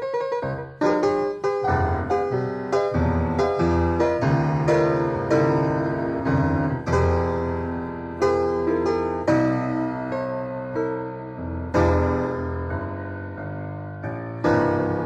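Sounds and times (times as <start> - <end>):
jazz piano chords: 0.0 - 15.0.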